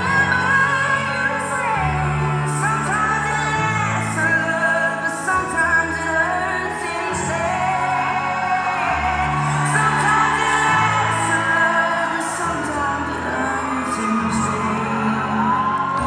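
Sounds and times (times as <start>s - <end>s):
pop music with singing: 0.0s - 16.0s.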